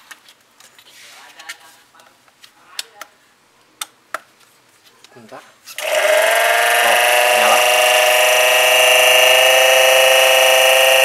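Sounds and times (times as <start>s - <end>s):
pump motor high-pitched whine: 5.8s - 11.0s.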